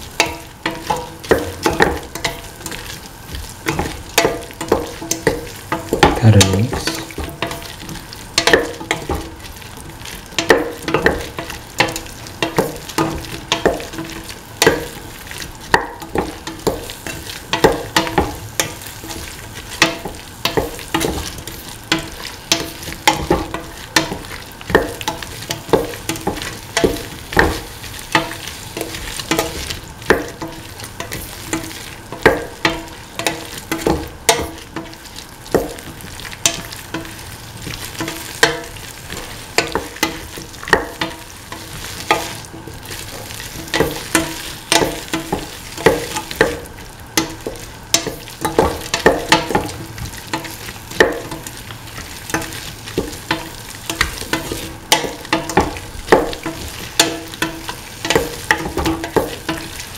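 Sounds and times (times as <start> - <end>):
quiet sizzle: 0.0 - 59.9.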